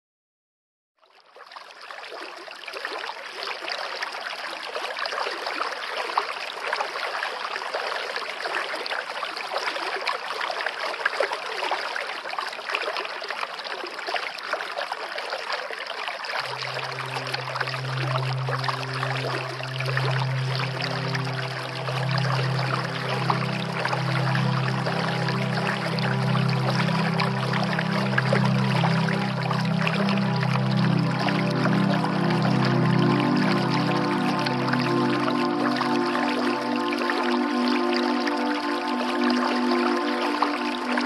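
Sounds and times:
slow calm music: 0:16.4 - 0:41.0
stream rushing over rapids: 0:16.4 - 0:41.0.

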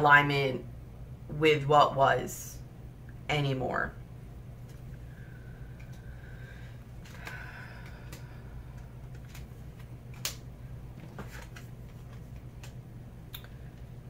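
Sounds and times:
steady low hum: 0:00.0 - 0:14.0
cards clicking and tapping: 0:11.0 - 0:12.8.

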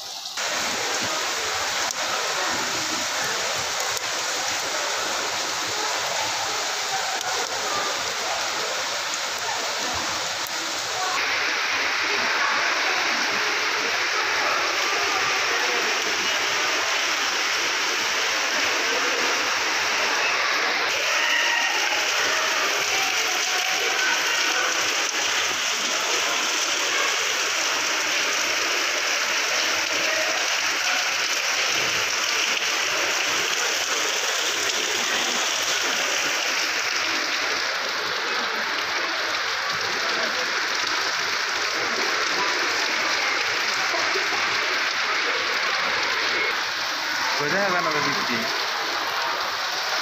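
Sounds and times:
heavy rain on pavement: 0:00.0 - 0:50.0.

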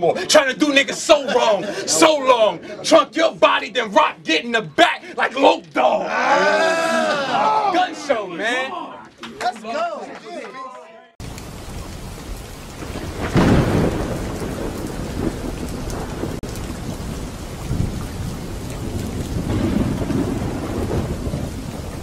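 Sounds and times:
steady rain: 0:00.0 - 0:02.9, 0:11.2 - 0:22.0
thunder rumbling: 0:11.2 - 0:22.0.

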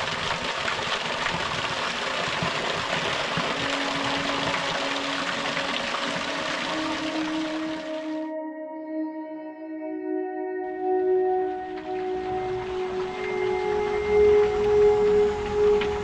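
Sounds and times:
waterfall rushing: 0:00.0 - 0:08.2, 0:11.8 - 0:16.0
soft held musical note: 0:11.2 - 0:16.0.

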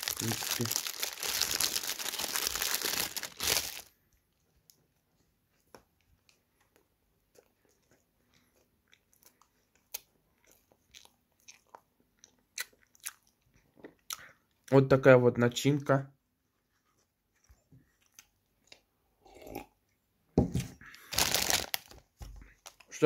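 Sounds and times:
plastic wrapper crinkling: 0:00.0 - 0:04.0, 0:21.0 - 0:23.0.

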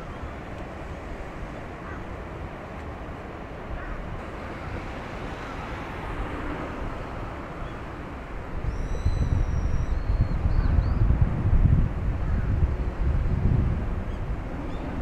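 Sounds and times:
wind buffeting microphone: 0:03.6 - 0:15.0
large ship rumbling past: 0:04.1 - 0:10.0.

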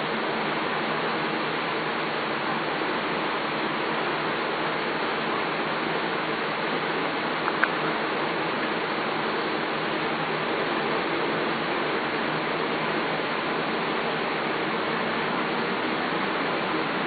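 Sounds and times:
steady hiss: 0:00.0 - 0:17.0.

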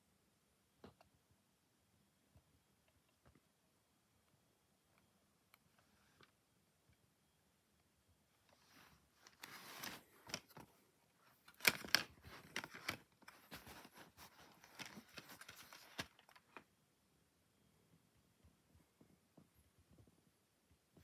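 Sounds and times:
plastic disc case clicks and rattles: 0:11.3 - 0:16.6.

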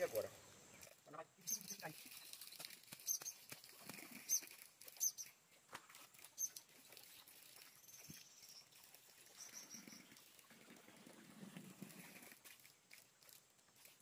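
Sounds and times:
hoe working wet earth: 0:00.0 - 0:14.0
sharp high chirps: 0:01.4 - 0:01.9.

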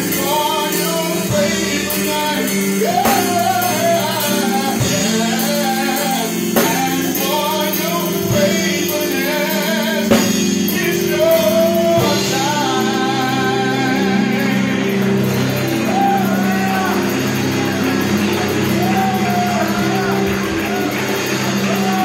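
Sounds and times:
electric guitar: 0:00.0 - 0:22.0
electric keyboard chords: 0:00.0 - 0:22.0
man singing: 0:00.0 - 0:22.0
drum hits: 0:14.4 - 0:22.0.

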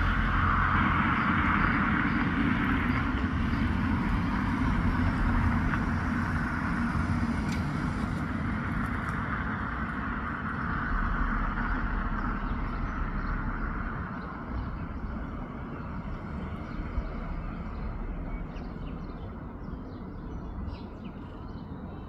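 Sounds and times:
low rumble: 0:09.6 - 0:21.4.

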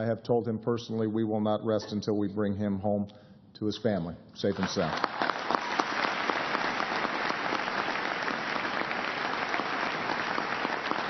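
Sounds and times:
large audience applauding: 0:04.5 - 0:11.0.

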